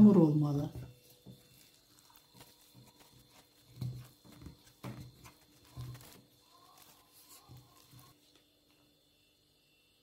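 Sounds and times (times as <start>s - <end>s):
dough thudding and squelching: 0.6s - 8.2s.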